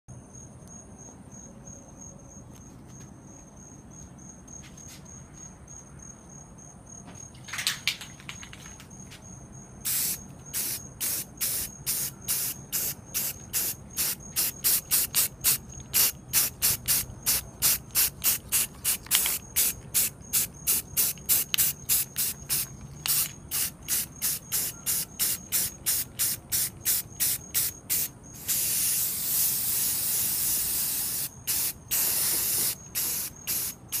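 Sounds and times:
spray paint can bursts: 9.9 - 34.0.

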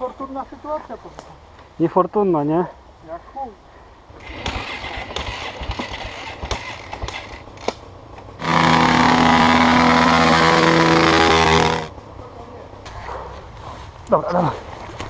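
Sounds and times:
rustling: 4.2 - 11.9
dirt bike engine revving high: 8.4 - 11.9.

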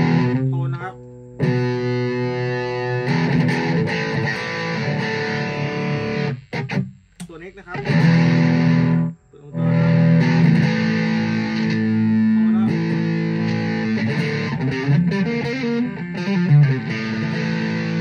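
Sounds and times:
distorted electric guitar chords: 0.0 - 18.0.

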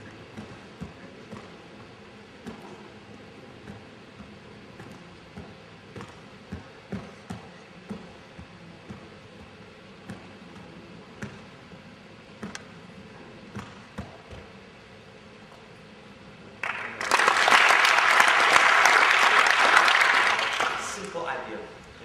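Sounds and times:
people clapping loudly: 16.6 - 21.3.

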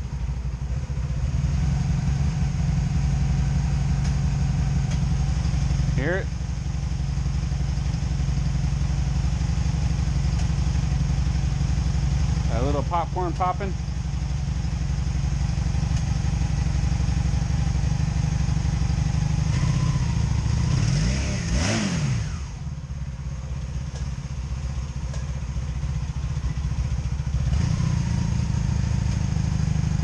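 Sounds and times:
motorcycle engine idling unevenly: 0.0 - 30.0
engine revving: 18.8 - 22.7, 27.3 - 30.0.

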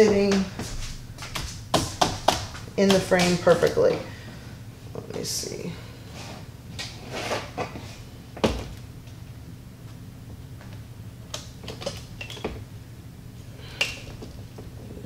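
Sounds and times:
canvas scraping in frame: 7.0 - 8.0.

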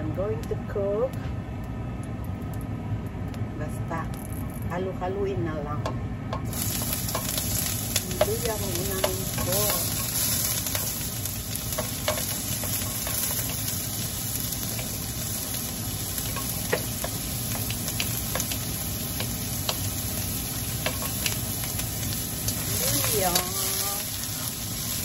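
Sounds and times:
spatula tapping wok: 5.8 - 24.0
ginger sizzling in hot oil: 6.4 - 25.0.

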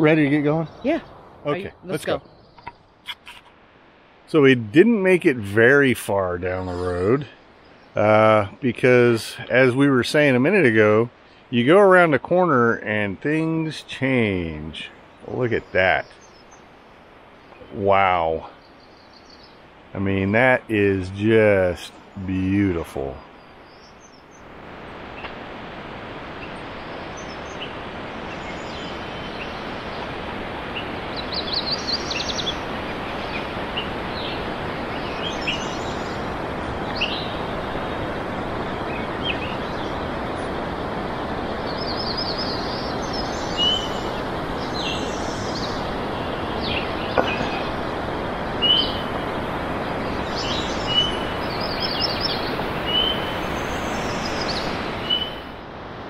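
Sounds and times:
songbirds singing: 0.0 - 55.6
steady rushing noise: 0.0 - 56.0
short bird chirps: 2.4 - 3.5
rapid high bird trills: 48.6 - 49.2.

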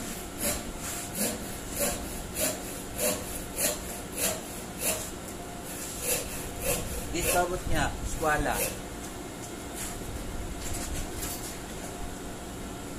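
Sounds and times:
hand saw cutting wood: 0.0 - 7.6, 8.4 - 8.8.

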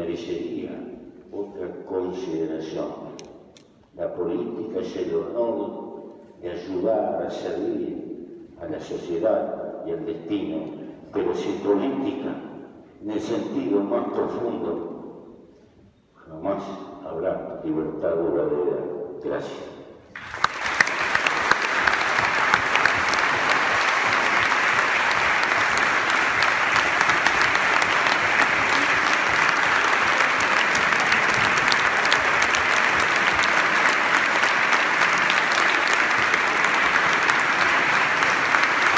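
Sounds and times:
audience applauding: 20.1 - 38.9.

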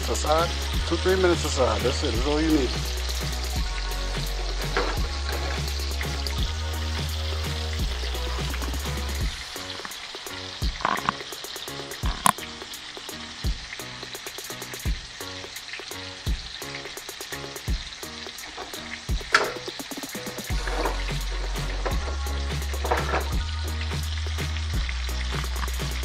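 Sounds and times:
fish sizzling in a skillet: 0.0 - 26.0
oil spattering pops: 12.0 - 12.5.

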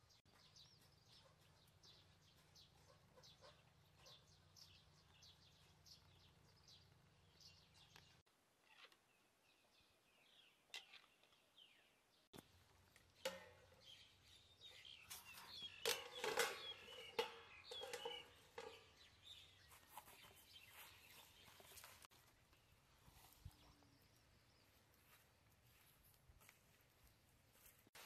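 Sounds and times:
faint bird chirps: 0.0 - 12.0, 13.2 - 25.8
spatula and lid clanking on wok: 15.4 - 19.2.

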